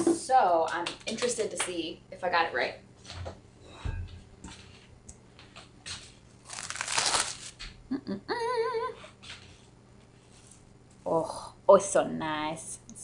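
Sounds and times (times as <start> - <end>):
plastic cling wrap crinkling: 6.4 - 7.6
woman humming mmm: 7.9 - 9.1.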